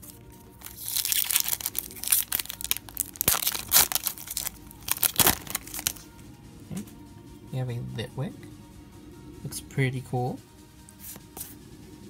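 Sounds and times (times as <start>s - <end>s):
foil wrapper crinkling and tearing: 0.0s - 6.1s.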